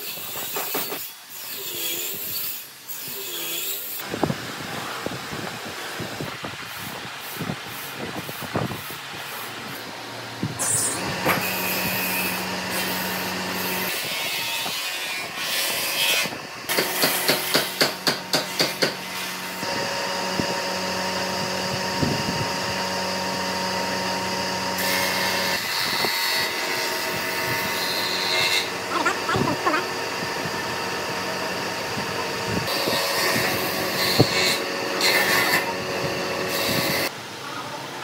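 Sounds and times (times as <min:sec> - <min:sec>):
steady background hum: 0:04.0 - 0:37.1.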